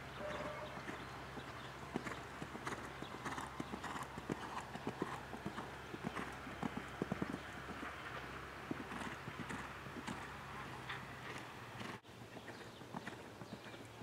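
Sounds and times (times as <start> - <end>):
horse hoofbeats on sand: 0.2 - 14.0.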